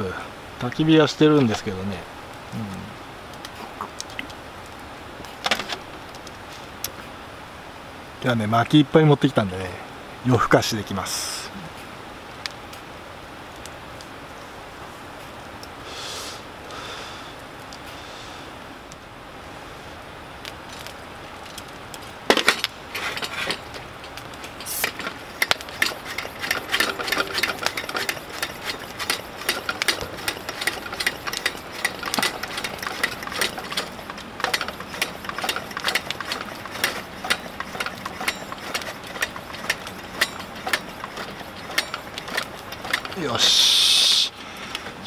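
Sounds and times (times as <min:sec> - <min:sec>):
stove pump plunger strokes: 0:24.6 - 0:43.2.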